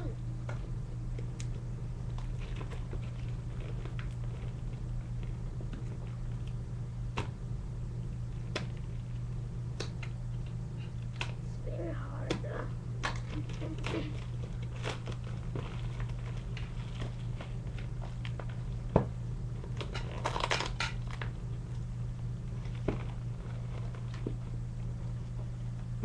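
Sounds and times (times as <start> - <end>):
steady low hum: 0.0 - 26.0
paper crinkling and rustling: 13.2 - 18.6.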